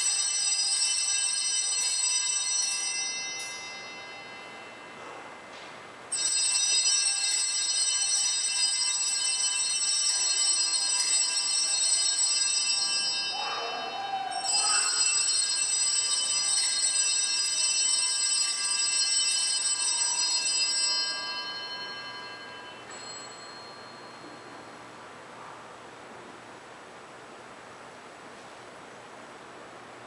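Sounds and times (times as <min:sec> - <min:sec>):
small bells ringing: 0:00.0 - 0:05.2, 0:06.1 - 0:25.0.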